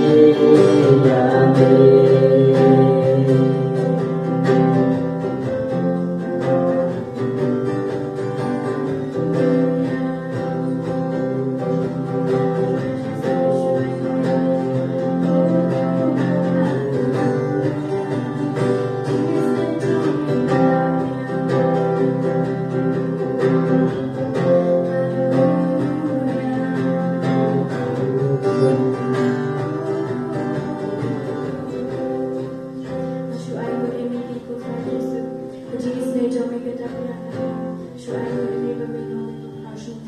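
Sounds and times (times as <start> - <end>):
voices singing into microphones: 0.0 - 4.7
acoustic guitar strumming: 0.0 - 40.0.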